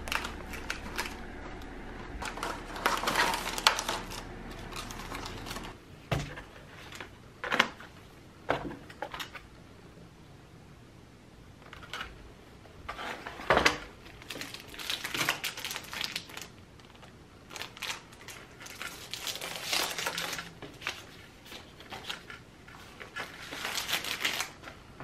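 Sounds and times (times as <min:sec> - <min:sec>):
plastic bag crinkling: 0:00.0 - 0:05.8, 0:14.2 - 0:24.8.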